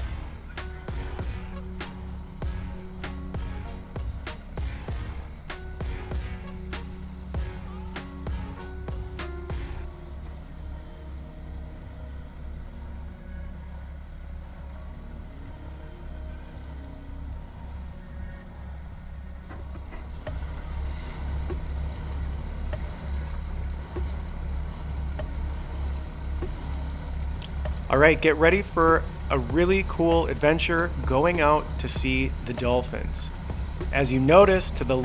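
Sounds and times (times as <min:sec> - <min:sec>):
motor boat engine throbbing: 0:00.0 - 0:35.0
water and wind hiss: 0:00.0 - 0:35.0.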